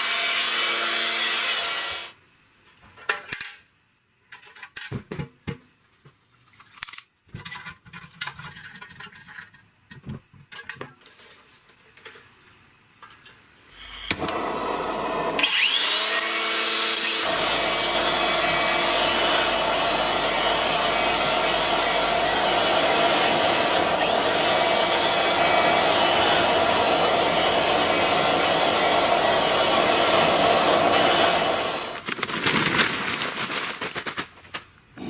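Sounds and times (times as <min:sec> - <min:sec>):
angle grinder spinning a fan: 0:13.8 - 0:32.0.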